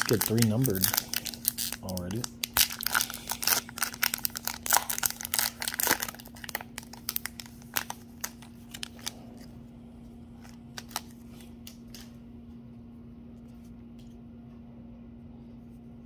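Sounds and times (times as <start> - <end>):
foil wrapper crinkling and tearing: 0.0 - 9.2, 10.4 - 12.0
faint steady hum: 0.0 - 16.0.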